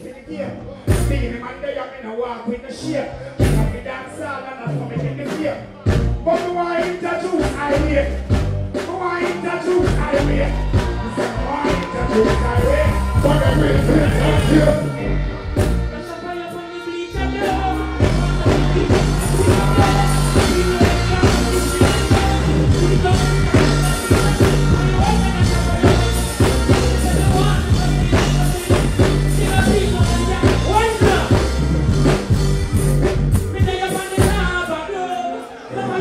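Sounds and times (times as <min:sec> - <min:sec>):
reggae music over sound system: 0:00.0 - 0:36.0
person singing: 0:11.0 - 0:31.6.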